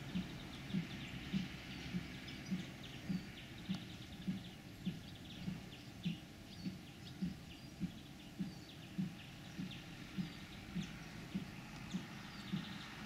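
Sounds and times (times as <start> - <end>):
faint high chirps and ticks: 0.0 - 13.0.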